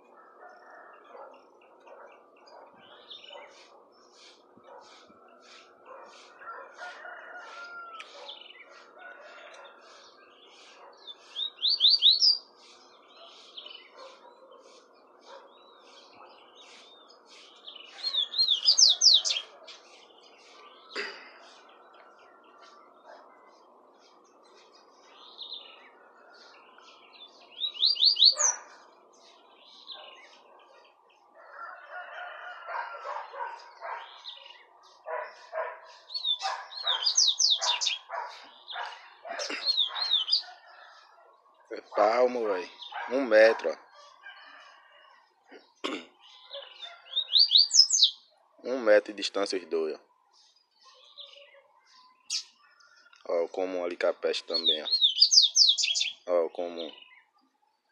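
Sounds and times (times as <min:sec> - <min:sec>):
bird chirps: 0:00.0 - 0:31.7, 0:32.6 - 0:41.3, 0:43.9 - 0:57.9
birds singing whistled notes: 0:00.0 - 0:45.1, 0:45.7 - 0:57.9.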